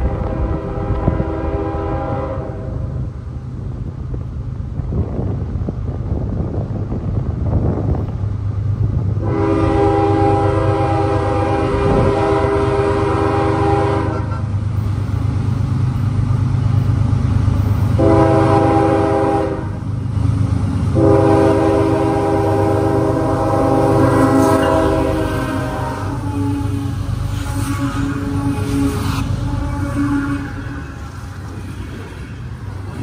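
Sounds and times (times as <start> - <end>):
locomotive air horn: 0.0 - 3.0, 9.2 - 14.5, 18.0 - 19.8, 20.9 - 31.6
train rumble: 0.0 - 33.0.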